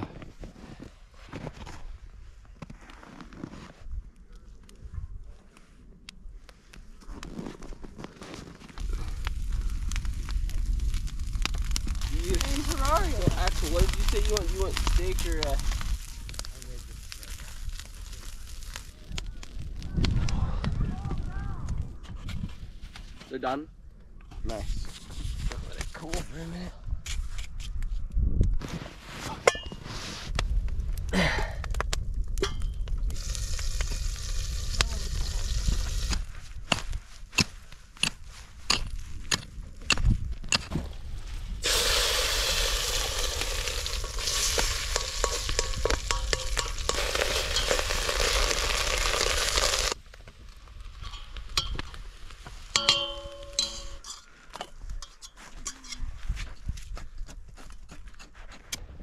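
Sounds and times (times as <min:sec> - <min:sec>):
eggs sizzling in a pan: 0:09.0 - 0:19.1, 0:33.1 - 0:36.3, 0:41.6 - 0:50.0
metal scraping in pan: 0:41.6 - 0:50.0
metal cookware clinks: 0:52.8 - 0:54.3.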